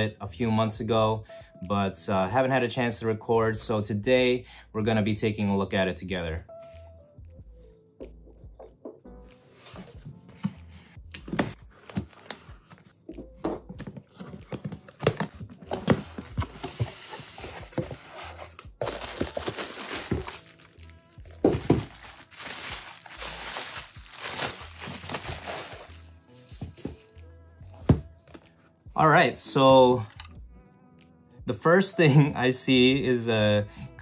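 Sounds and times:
cardboard flaps rustling: 0:13.8 - 0:27.0
bubble wrap crinkling: 0:14.4 - 0:27.2.

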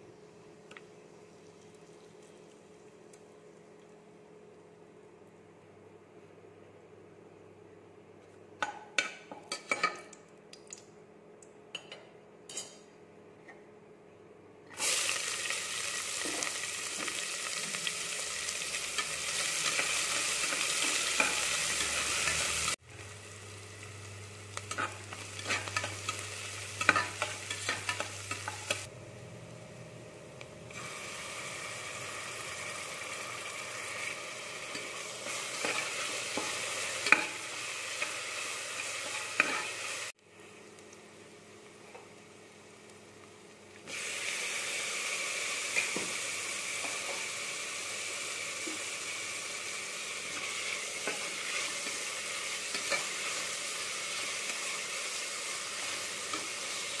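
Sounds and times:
onions sizzling in oil: 0:14.8 - 0:28.9, 0:30.6 - 0:57.0.

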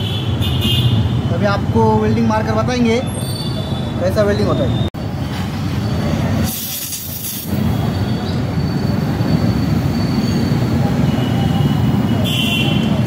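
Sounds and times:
sharp hiss of gas: 0:06.4 - 0:07.6.

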